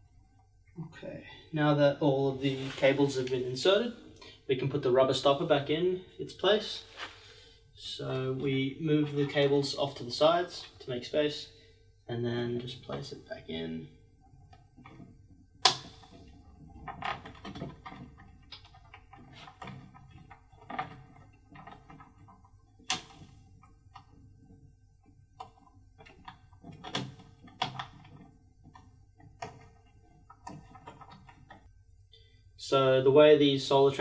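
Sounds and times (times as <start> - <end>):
plastic clicks and knocks: 25.0 - 31.7.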